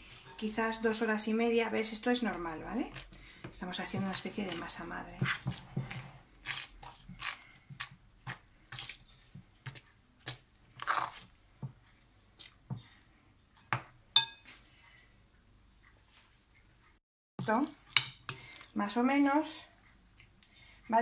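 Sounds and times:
fork scraping thick batter: 0:02.2 - 0:11.3, 0:17.8 - 0:18.8
fork clinking on glass bowl: 0:14.2 - 0:14.5.

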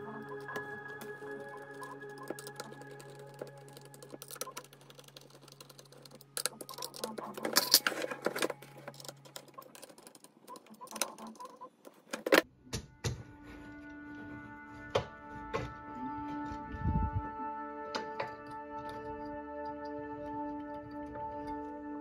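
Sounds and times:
screwdriver and plastic parts clicking: 0:00.0 - 0:12.4.

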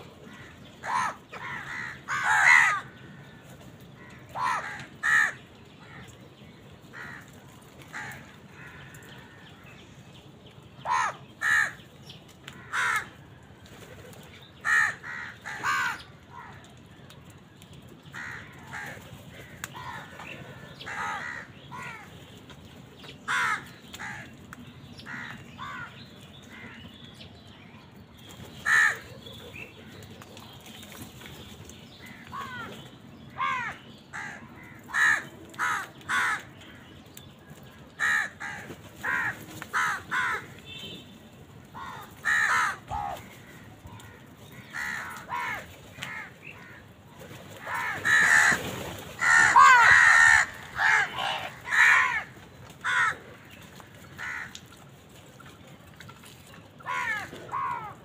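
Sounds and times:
crows cawing: 0:00.3 - 0:06.1, 0:06.9 - 0:09.7, 0:10.8 - 0:11.8, 0:12.4 - 0:13.3, 0:14.6 - 0:16.6, 0:18.1 - 0:22.1, 0:23.3 - 0:24.3, 0:25.0 - 0:26.8, 0:28.6 - 0:29.1, 0:32.0 - 0:32.7, 0:33.3 - 0:36.8, 0:38.0 - 0:40.7, 0:41.7 - 0:46.9, 0:47.6 - 0:54.7, 0:56.8 - 0:58.0.

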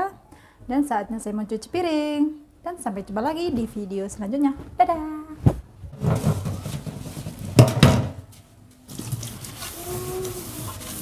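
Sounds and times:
sponge scrubbing a plate: 0:08.9 - 0:11.0.

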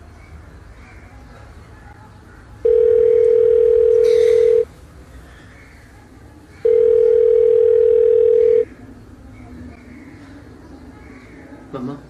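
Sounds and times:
telephone ringback tone: 0:02.6 - 0:04.6, 0:06.7 - 0:08.6.

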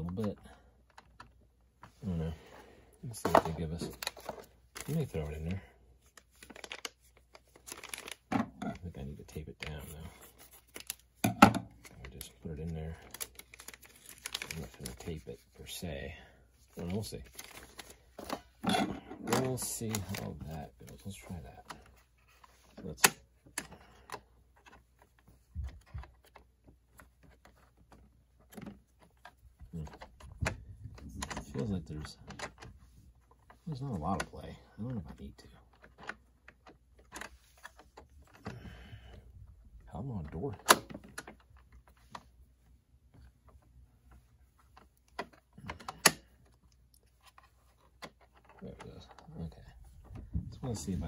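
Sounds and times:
plastic parts clicking: 0:06.1 - 0:08.8, 0:43.1 - 0:49.4.

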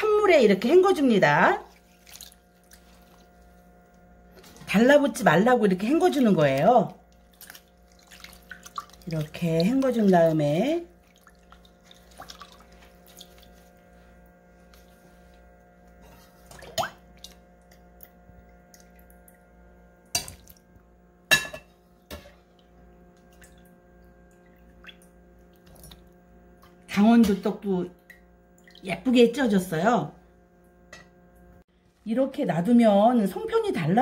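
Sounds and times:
faint steady hum: 0:00.0 - 0:34.0
water splashing and dripping: 0:01.7 - 0:03.4, 0:05.8 - 0:13.8, 0:16.4 - 0:19.4, 0:20.2 - 0:20.7, 0:22.5 - 0:26.2, 0:28.0 - 0:28.9.

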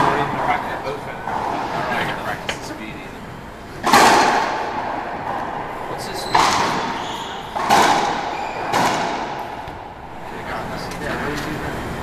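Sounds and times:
racquetball cracks off walls: 0:03.8 - 0:04.8, 0:06.3 - 0:09.8.

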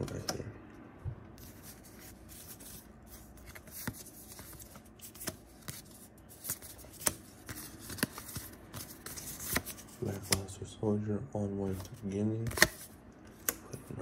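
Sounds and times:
cards sliding and rubbing: 0:01.4 - 0:10.4
cards clicking: 0:12.4 - 0:13.8.

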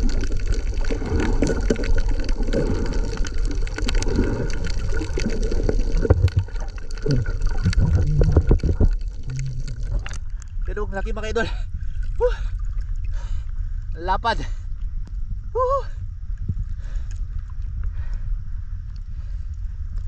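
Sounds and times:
underwater rush and bubbling: 0:00.0 - 0:13.9.

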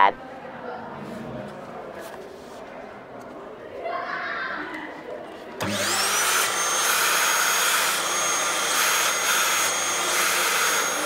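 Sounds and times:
suction motor whine: 0:05.6 - 0:11.0.

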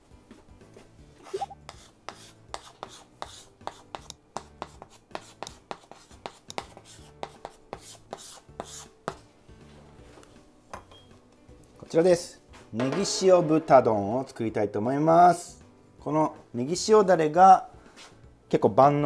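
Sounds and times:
chalk tapping and scratching: 0:01.2 - 0:09.2.

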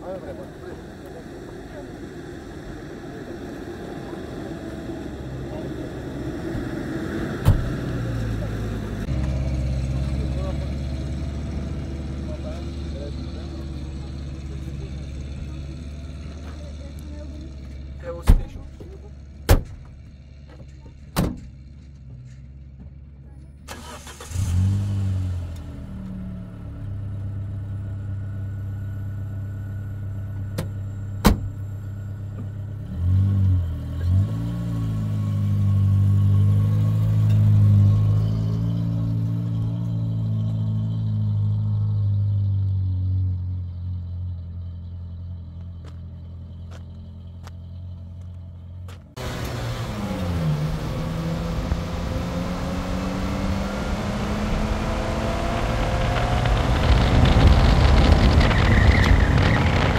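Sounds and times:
truck engine running: 0:00.0 - 0:24.4, 0:25.7 - 0:59.9.

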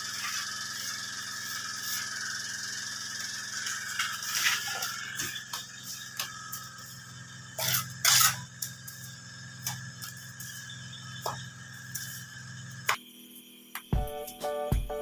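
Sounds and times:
steady hum: 0:00.0 - 0:15.0
hand tool scraping cement: 0:07.6 - 0:08.5.

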